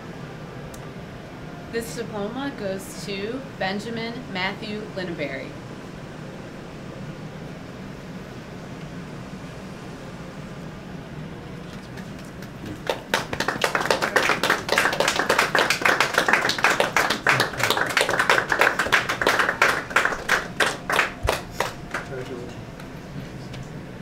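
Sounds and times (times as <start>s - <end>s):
group of people clapping: 11.6s - 23.0s.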